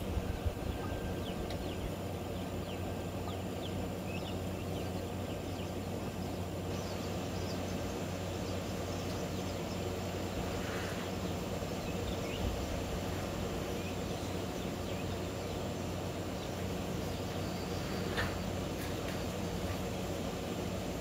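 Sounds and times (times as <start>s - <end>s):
faint bird calls: 0.0s - 20.8s
low hum: 0.0s - 21.0s.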